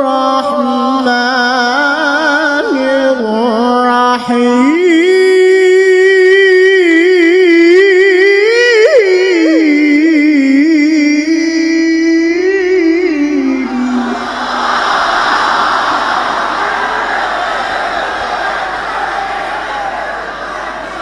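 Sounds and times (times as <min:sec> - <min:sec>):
man reciting melodically: 0:00.0 - 0:14.6.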